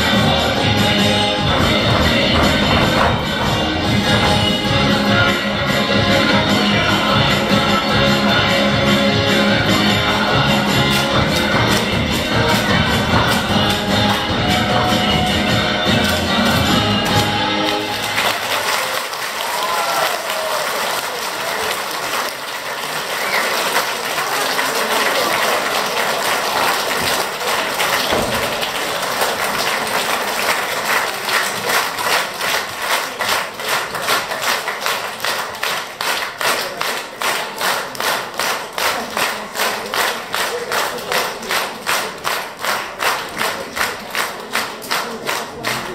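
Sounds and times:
rhythmic clapping in unison: 0:00.0 - 0:45.9
audience applauding: 0:10.9 - 0:45.9.

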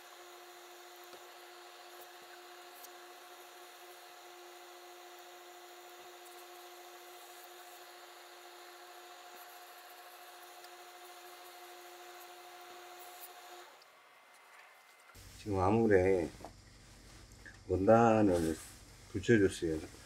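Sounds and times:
soft hiss: 0:15.0 - 0:20.0
electrical hum: 0:15.2 - 0:20.0.

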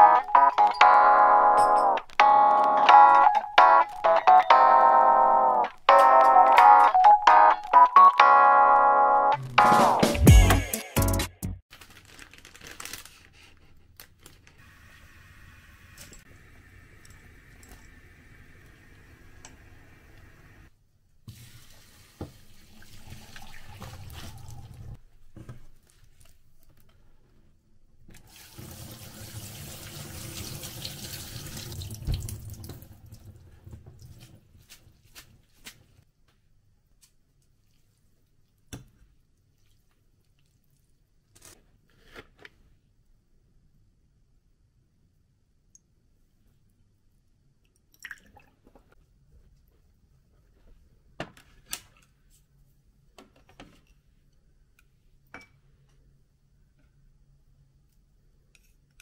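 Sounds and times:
tap water running into sink: 0:21.3 - 0:25.0, 0:28.2 - 0:34.2.

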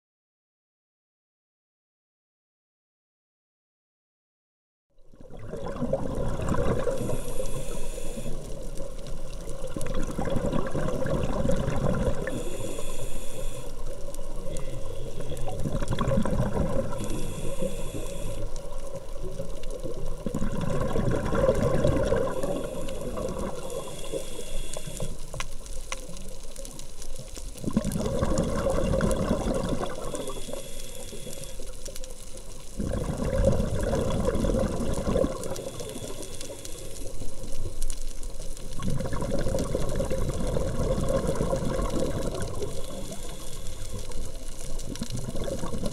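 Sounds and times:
exhaled bubbles rushing: 0:05.1 - 0:12.8, 0:15.1 - 0:17.7, 0:19.0 - 0:24.0, 0:27.6 - 0:31.3, 0:32.7 - 0:36.4, 0:38.6 - 0:45.9
regulator inhale hiss: 0:06.8 - 0:08.8, 0:12.1 - 0:15.7, 0:16.8 - 0:19.0, 0:22.0 - 0:25.5, 0:29.8 - 0:32.0, 0:35.3 - 0:37.5, 0:41.1 - 0:44.4.

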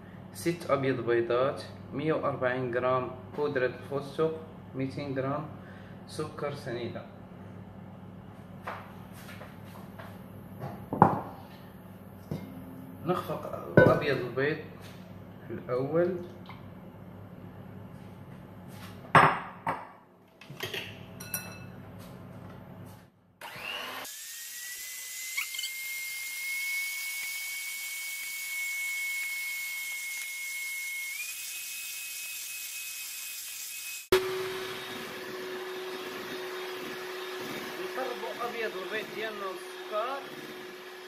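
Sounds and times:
electric hand mixer whining: 0:23.4 - 0:41.0.

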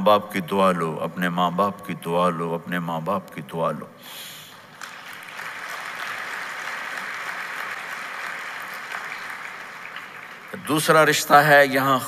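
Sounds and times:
large audience applauding: 0:04.5 - 0:11.6.

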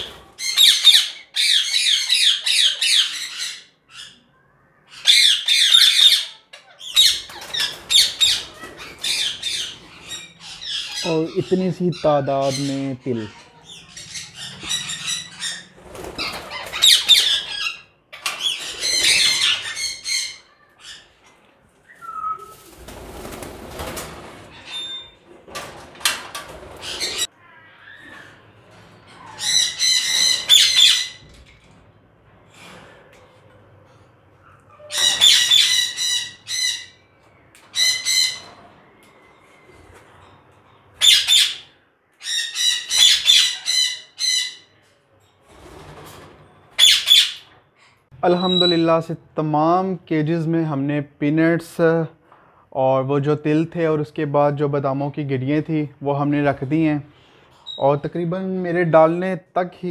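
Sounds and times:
parakeets squawking: 0:00.0 - 0:21.2, 0:26.6 - 0:31.4, 0:34.4 - 0:37.1, 0:37.7 - 0:38.6, 0:41.0 - 0:44.8, 0:46.8 - 0:48.9.

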